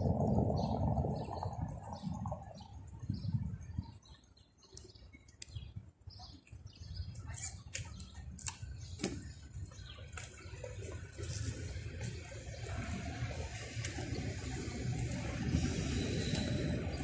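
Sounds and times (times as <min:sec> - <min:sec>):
low street rumble: 0:00.0 - 0:17.0.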